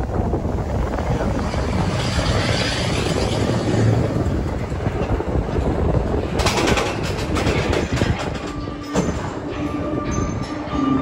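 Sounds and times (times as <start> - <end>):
roller coaster train rumbling: 0.0 - 11.0
rapid clacks: 6.2 - 8.6.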